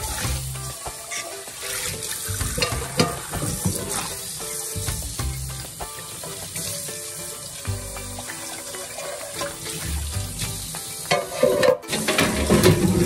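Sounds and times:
faucet water spraying on pan: 0.0s - 13.0s
music with pulsing bass: 4.8s - 5.7s.

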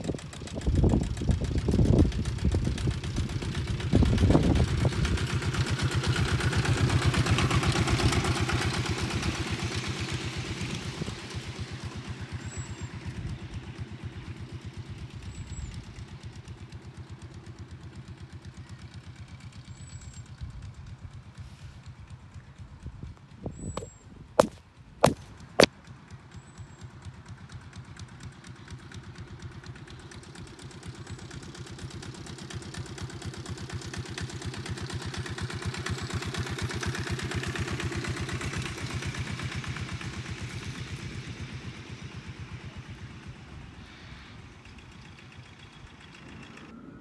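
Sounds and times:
miniature train engine passing: 0.0s - 15.1s, 24.8s - 47.0s.

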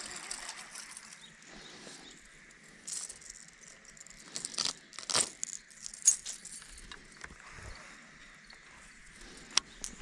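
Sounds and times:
fishing tackle clicks and rustling: 0.0s - 7.4s.

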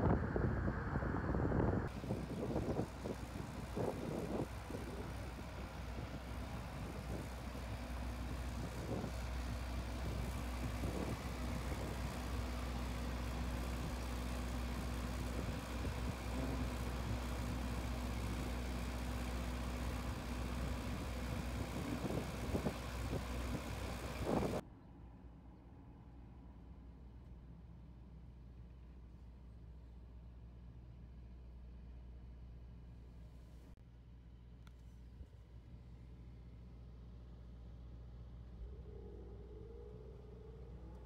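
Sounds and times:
vehicle engine idling: 0.0s - 24.6s.

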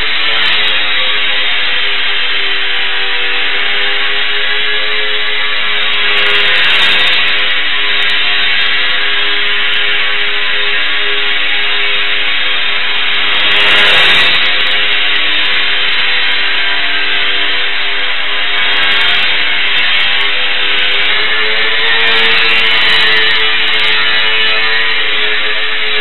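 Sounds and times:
small electric propeller buzzing: 0.0s - 26.0s.

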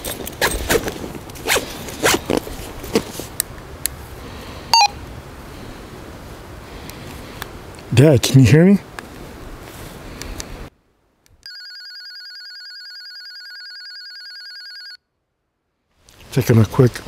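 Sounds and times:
backpack being handled: 0.0s - 3.4s
backpack zipper pulled: 0.3s - 3.3s.

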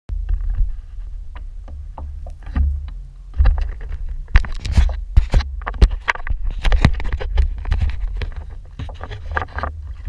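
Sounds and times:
wind buffeting microphone: 0.1s - 10.0s
small clicks and knocks: 1.3s - 10.0s.

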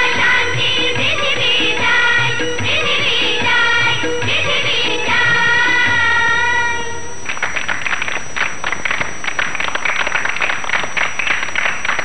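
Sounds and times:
audience applauding: 7.2s - 12.0s.

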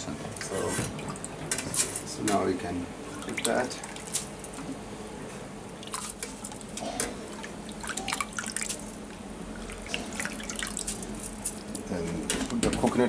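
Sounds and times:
water dripping and splashing: 3.1s - 4.6s, 5.8s - 11.8s
water trickling into a pot: 7.4s - 11.5s.

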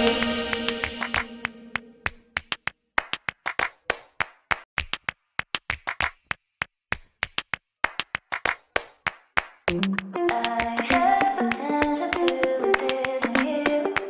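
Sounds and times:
electronic music track: 0.0s - 2.1s, 9.7s - 14.0s
hand claps and clicks: 0.0s - 14.0s.

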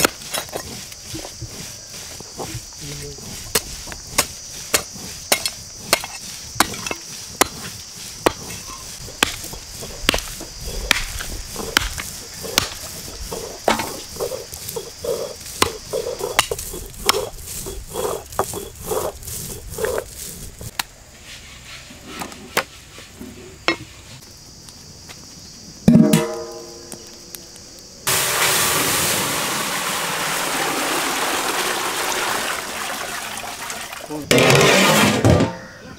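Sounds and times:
cleaver chopping through bones: 9.2s - 12.8s.

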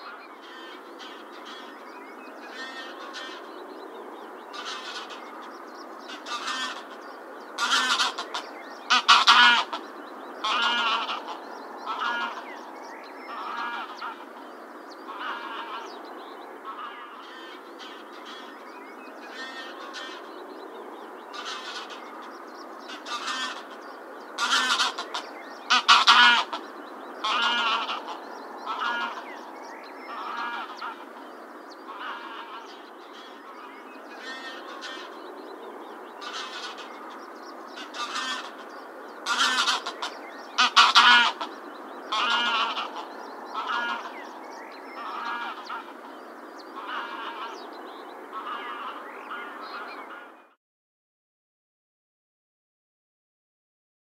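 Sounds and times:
steady background hiss: 0.0s - 50.3s
geese honking: 6.1s - 7.0s, 7.6s - 9.8s, 10.4s - 12.5s, 13.3s - 14.2s, 15.1s - 15.9s, 22.9s - 23.8s, 24.4s - 26.6s, 27.2s - 29.4s, 30.1s - 31.1s, 31.9s - 33.4s, 37.8s - 41.5s, 42.1s - 44.3s, 45.0s - 46.0s, 46.8s - 47.6s, 48.3s - 50.4s.

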